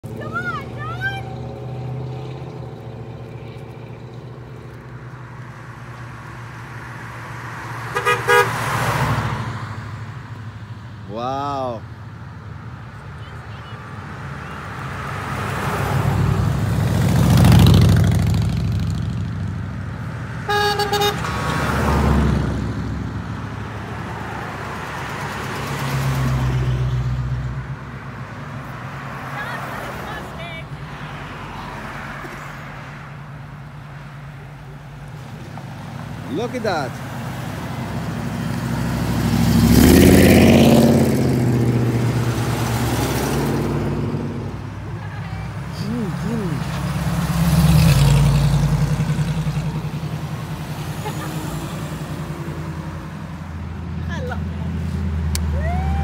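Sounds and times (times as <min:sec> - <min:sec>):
cars driving past: 0:00.0 - 0:56.0
car horn toot: 0:07.9 - 0:08.7, 0:20.4 - 0:21.4
car driving past: 0:34.1 - 0:44.8, 0:45.5 - 0:56.0.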